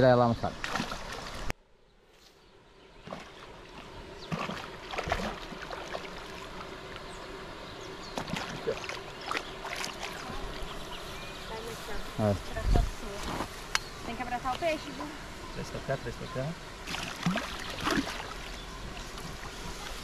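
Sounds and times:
fish thrashing and splashing water: 0:00.6 - 0:01.5, 0:03.0 - 0:06.8, 0:08.2 - 0:10.6, 0:16.8 - 0:19.9.

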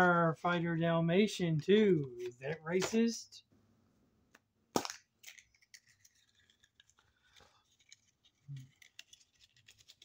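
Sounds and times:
wrapper crackling: 0:05.2 - 0:10.0.

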